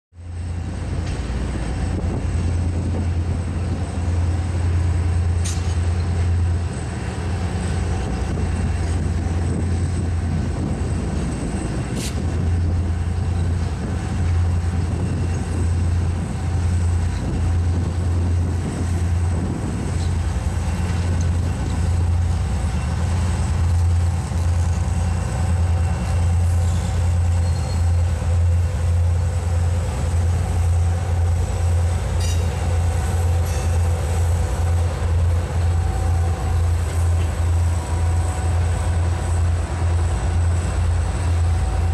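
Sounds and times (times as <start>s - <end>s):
diesel locomotive engine rumble: 0.1s - 41.9s
brief high squeaks: 26.6s - 28.0s.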